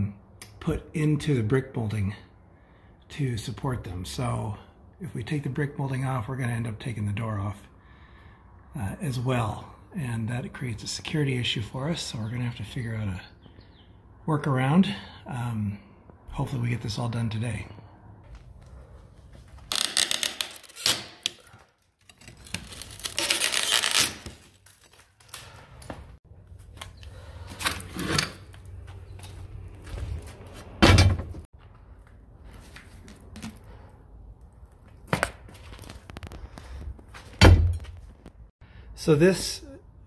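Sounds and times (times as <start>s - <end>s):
wood creaking and tearing: 19.6s - 26.0s, 35.6s - 37.1s.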